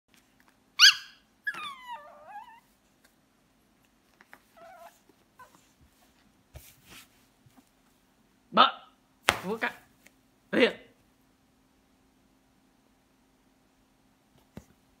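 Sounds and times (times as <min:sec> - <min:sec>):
puppy yelp: 0:00.8 - 0:02.7, 0:04.5 - 0:05.7
puppy whining: 0:00.8 - 0:02.8, 0:04.4 - 0:05.8.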